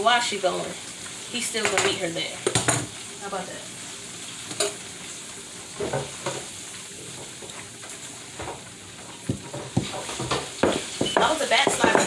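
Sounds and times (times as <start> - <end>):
food sizzling in a pan: 0.0 - 12.0
utensil knocking against pan: 9.3 - 12.0.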